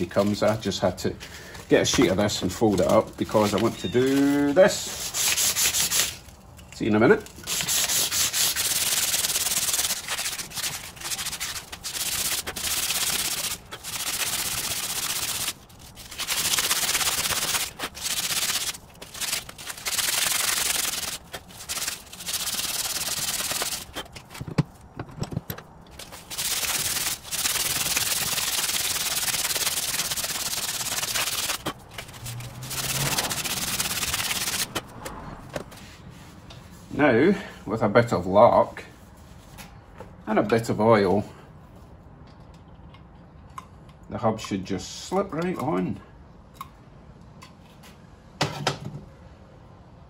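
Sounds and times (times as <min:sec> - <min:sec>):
sandpaper scratching on metal: 0:02.1 - 0:06.2, 0:07.4 - 0:24.2, 0:26.0 - 0:34.8.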